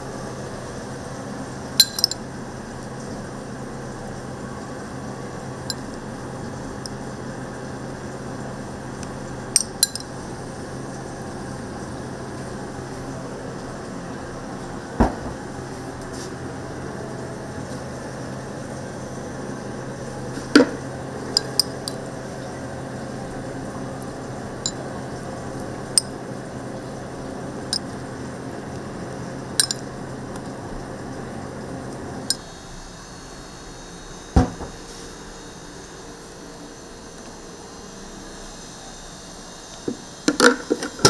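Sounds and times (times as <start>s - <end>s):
steady machine hum: 0.0s - 41.0s
clinks of utensils and dishes: 1.8s - 2.2s, 29.6s - 29.8s.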